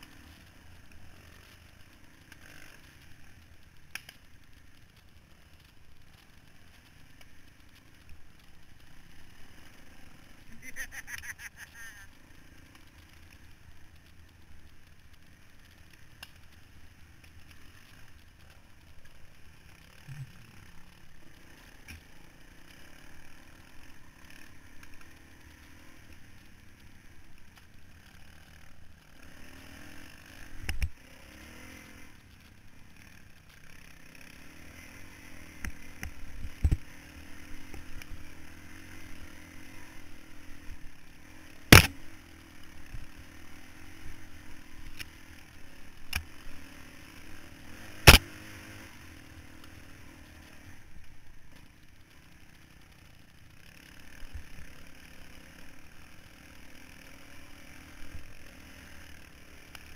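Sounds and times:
dirt bike engine running: 0:00.0 - 0:59.9.

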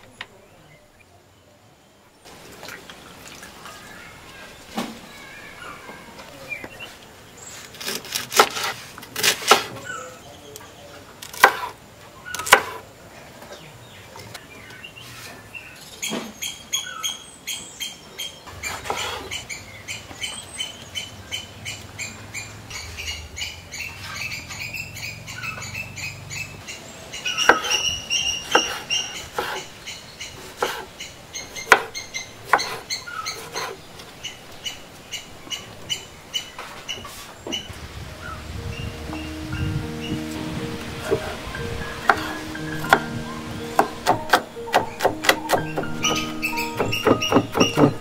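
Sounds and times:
birds chirping: 0:00.0 - 0:08.6, 0:09.2 - 0:48.0
knife chopping on wooden board: 0:11.2 - 0:11.7, 0:12.4 - 0:12.8, 0:28.5 - 0:29.6, 0:30.4 - 0:30.9, 0:31.6 - 0:31.9, 0:32.5 - 0:32.8, 0:42.1 - 0:43.1, 0:43.7 - 0:48.0.

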